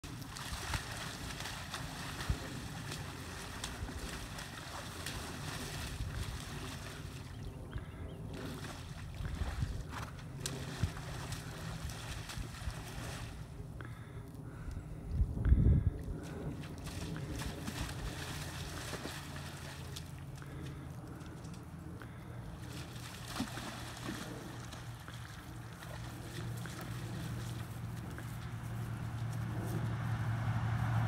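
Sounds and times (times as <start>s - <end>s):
wind buffeting microphone: 0.3s - 13.4s, 14.5s - 19.5s
faint clicks and ticks: 20.0s - 22.0s.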